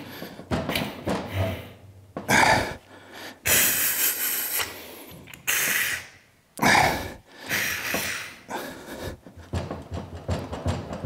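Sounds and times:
short hissing bursts: 5.5s - 6.2s.

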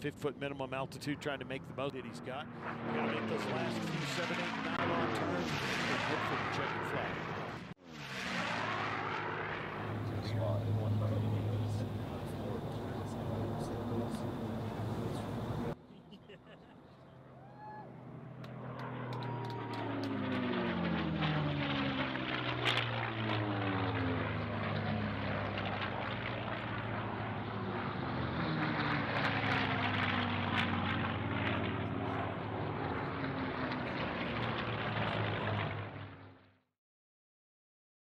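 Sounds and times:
propeller plane engine drone: 0.0s - 36.7s.

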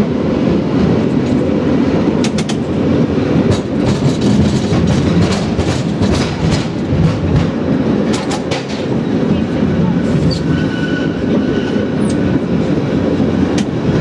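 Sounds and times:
cable car rumbling on rails: 0.0s - 14.0s
sharp clacks and rattles: 3.4s - 9.0s.

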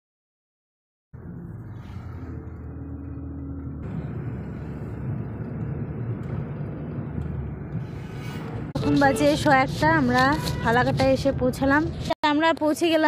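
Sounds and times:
car engine and road noise: 1.1s - 13.0s.

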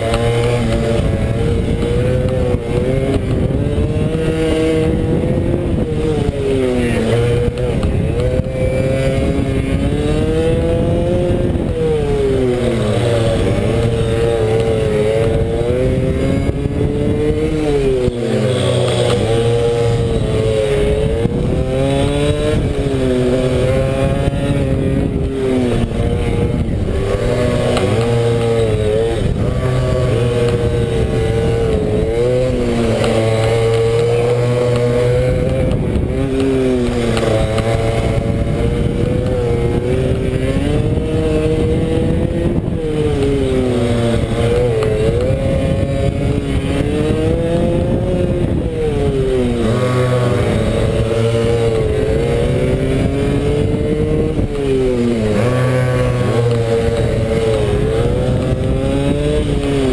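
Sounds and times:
motorbike engine revving: 0.0s - 59.9s.

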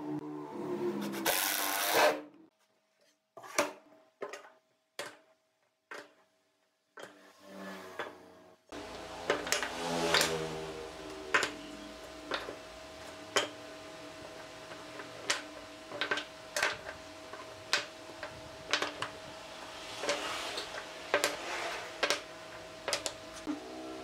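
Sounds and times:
wooden blocks knocking on wood: 22.0s - 23.2s.

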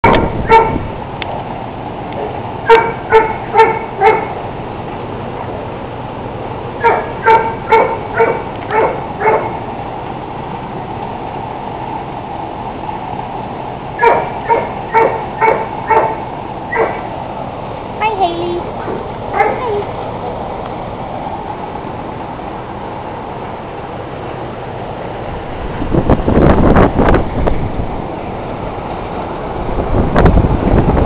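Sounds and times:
steady background noise: 0.0s - 31.0s
dog barking: 0.1s - 0.8s, 2.2s - 4.4s, 6.8s - 9.6s, 14.0s - 17.1s, 19.3s - 19.8s.

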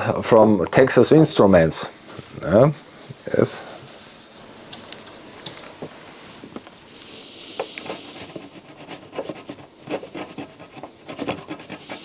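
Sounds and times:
screwdriver scraping circuit board: 7.6s - 12.0s.

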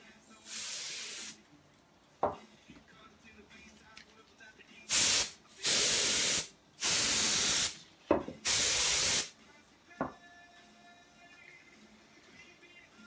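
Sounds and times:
compressed air hissing bursts: 0.4s - 1.4s, 4.9s - 7.8s, 8.4s - 9.4s.

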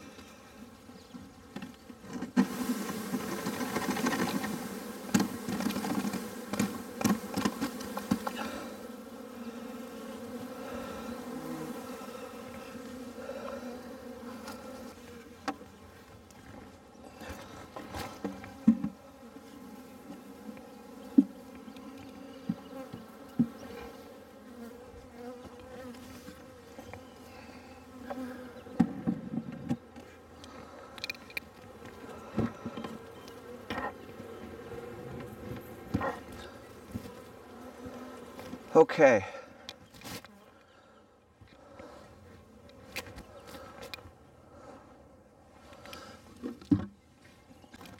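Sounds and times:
honey bees buzzing: 0.0s - 47.9s
clicks and thumps of hive woodwork: 1.2s - 8.9s, 14.3s - 19.0s, 20.0s - 27.1s, 27.9s - 38.8s, 39.6s - 40.8s, 42.6s - 44.2s, 45.7s - 47.9s.

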